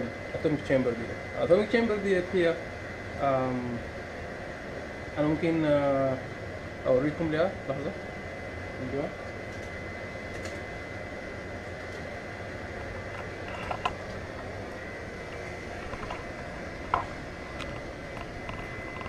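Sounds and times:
equipment and ventilation hum: 0.0s - 19.0s.

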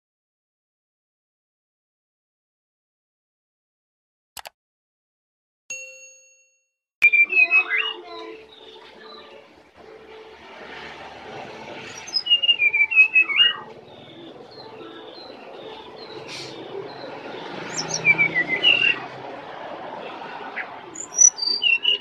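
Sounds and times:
bird chirping high notes: 11.8s - 19.1s, 20.9s - 22.0s.

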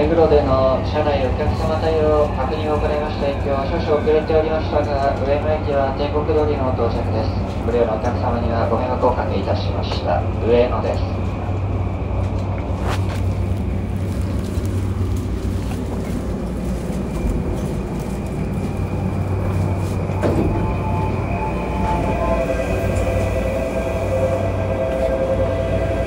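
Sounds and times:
electric train rumble and hum: 0.0s - 26.0s
steady whine: 8.8s - 26.0s.

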